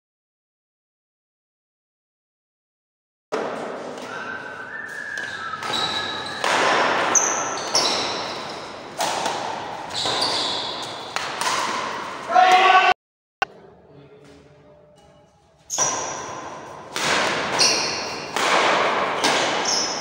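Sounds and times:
badminton shuttlecock hits: 3.4 - 12.8, 15.7 - 20.0
high shoe squeaks: 4.0 - 9.0, 9.8 - 11.2, 15.2 - 16.8, 17.4 - 18.3, 19.2 - 20.0.

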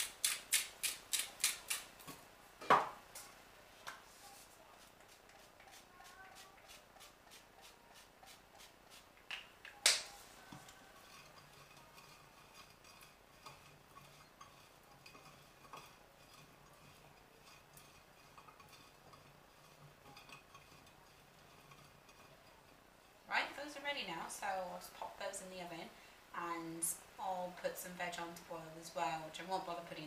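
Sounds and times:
bottle knocking down on surface: 2.6 - 3.0.

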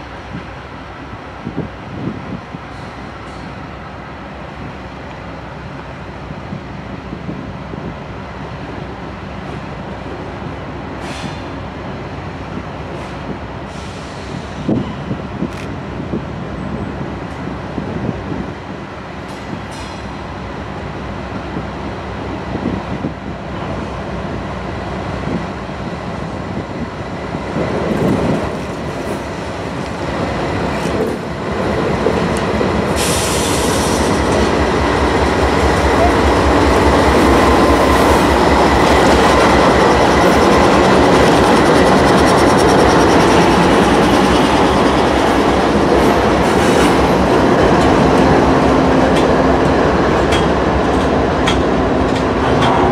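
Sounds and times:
diesel locomotive engines rumbling: 0.0 - 52.9
train wheels clattering over rails: 27.6 - 52.9.

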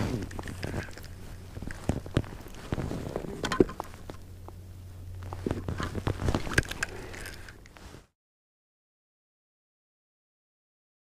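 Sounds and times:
low steady hum: 0.0 - 8.2.

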